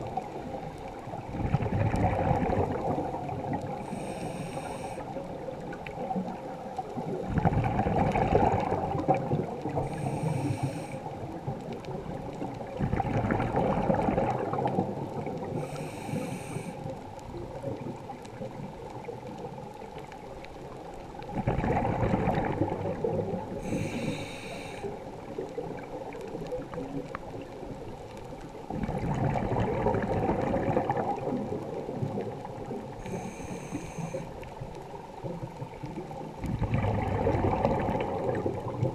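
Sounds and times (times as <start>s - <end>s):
exhaled bubbles rushing: 0.0s - 3.9s, 5.3s - 10.1s, 11.3s - 15.7s, 21.3s - 23.8s, 28.7s - 33.0s, 35.2s - 38.9s
regulator hiss on inhale: 3.7s - 5.5s, 9.6s - 11.3s, 15.4s - 17.2s, 23.5s - 25.4s, 32.9s - 34.6s.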